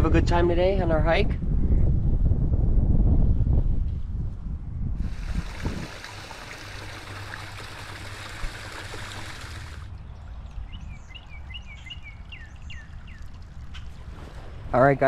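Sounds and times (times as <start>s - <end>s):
stream trickling and splashing: 5.0s - 15.0s
bird chirping: 9.9s - 13.9s.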